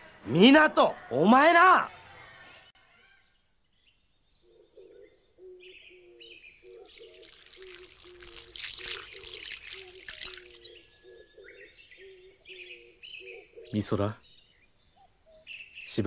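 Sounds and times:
low repeating bird call: 4.4s - 14.2s
high bird chirps: 5.9s - 13.5s
rushing water-like hiss: 6.8s - 11.0s.

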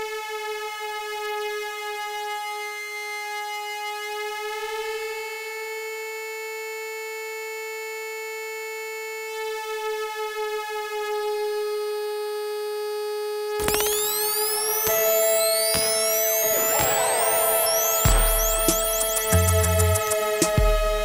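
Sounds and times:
held synthesizer tone: 13.6s - 20.2s
sweeping synth glides: 13.8s - 20.3s.

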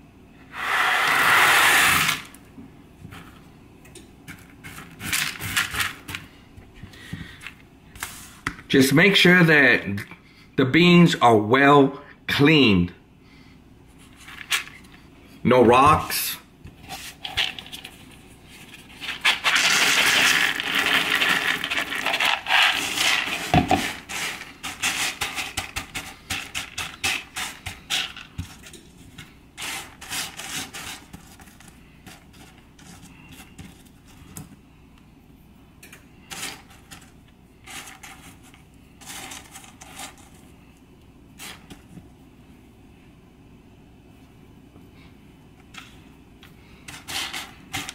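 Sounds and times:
hands sifting through beans: 16.8s - 34.3s, 36.3s - 40.5s, 46.8s - 47.9s
dry beans pouring and rattling: 19.0s - 28.7s.

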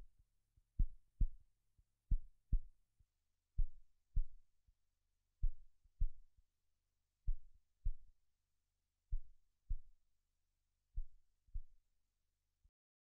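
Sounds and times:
heartbeat thumps: 2.1s - 2.6s.

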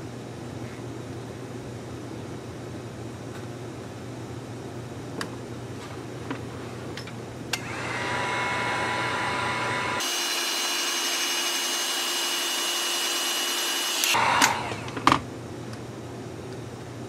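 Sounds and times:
fan whine: 0.0s - 17.0s
heat gun blowing air: 7.6s - 15.1s.

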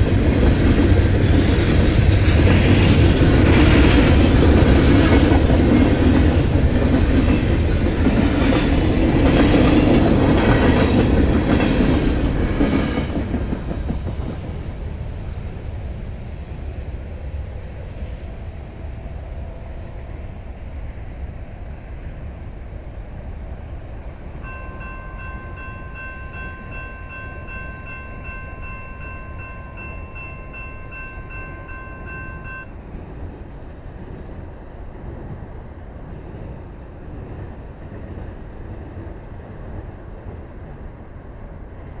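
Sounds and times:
freight train rumbling: 0.0s - 42.0s
crossing bell ringing: 24.4s - 32.7s.

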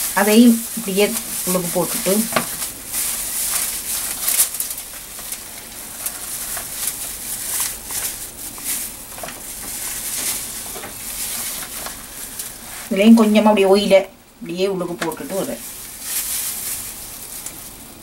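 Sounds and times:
plastic glove crinkling: 0.0s - 18.0s.

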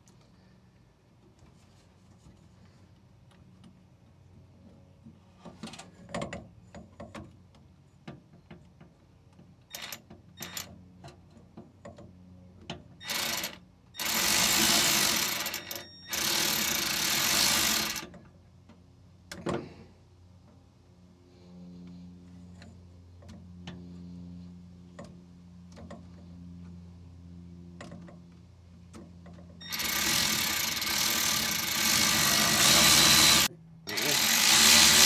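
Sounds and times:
cordless ratchet running: 29.6s - 35.0s.

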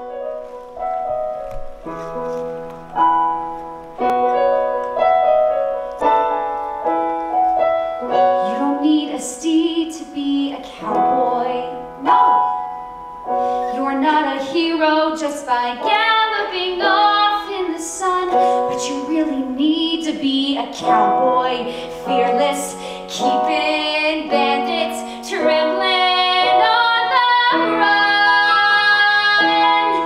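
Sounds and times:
instrumental accompaniment: 0.0s - 14.8s
woman singing: 8.4s - 12.2s, 13.7s - 30.0s.

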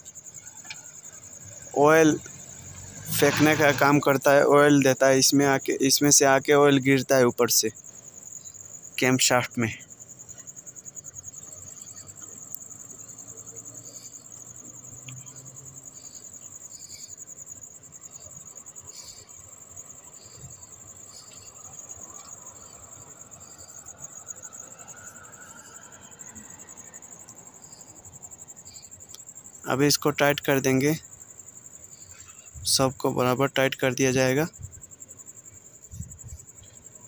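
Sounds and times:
insect trilling: 0.0s - 37.0s
faint clicks of engine parts: 0.6s - 1.1s, 15.0s - 15.4s.

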